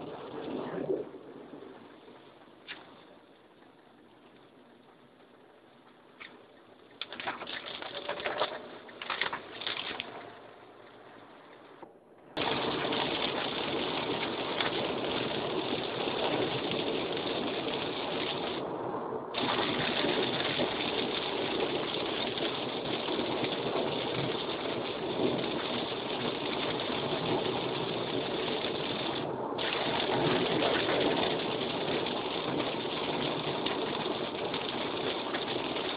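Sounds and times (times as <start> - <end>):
raindrops tapping on windshield: 0.0 - 18.7, 19.4 - 35.9
heavy rain downpour on car: 12.4 - 35.9.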